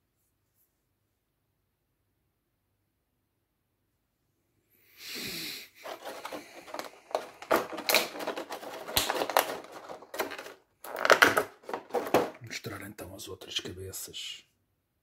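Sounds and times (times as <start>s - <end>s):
plastic packaging crinkling: 5.8s - 12.4s.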